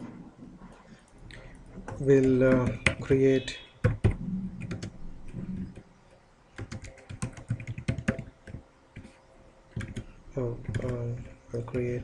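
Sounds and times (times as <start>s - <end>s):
computer keyboard typing: 1.6s - 3.2s, 3.8s - 5.9s, 6.6s - 12.0s.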